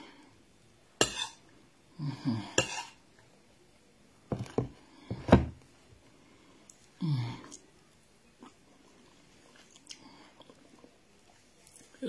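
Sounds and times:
metal spoon scraping ceramic plate: 0:01.0 - 0:01.4.

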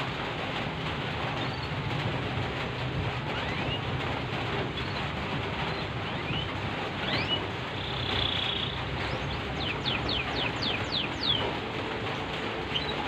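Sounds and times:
rain falling: 0:00.0 - 0:13.0
canary chirping: 0:05.7 - 0:11.6.

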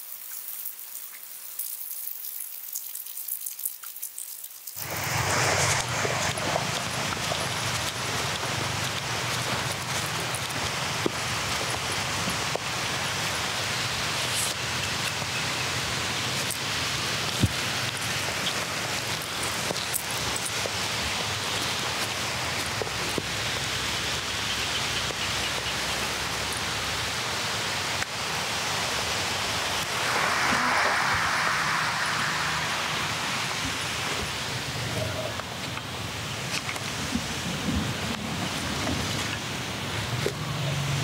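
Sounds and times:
rain hissing: 0:00.0 - 0:41.0.

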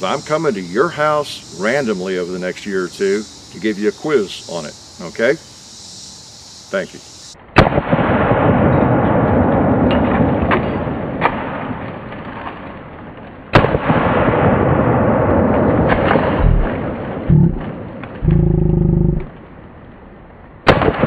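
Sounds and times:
slowed gunshots booming: 0:16.1 - 0:19.3
short low drone: 0:16.4 - 0:16.7, 0:17.3 - 0:17.6, 0:18.2 - 0:19.3.

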